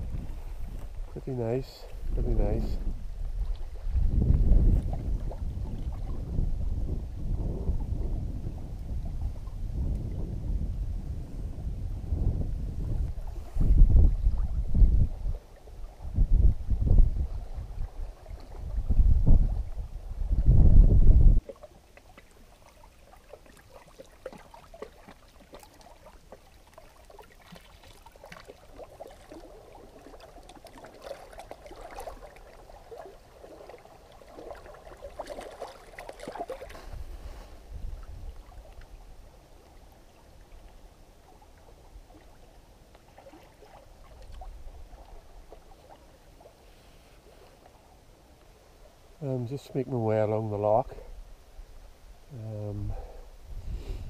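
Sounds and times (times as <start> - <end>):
wind rumble on microphone: 0.0 - 21.5, 31.1 - 46.5, 48.8 - 54.0
waves lapping against boulders: 0.0 - 52.1.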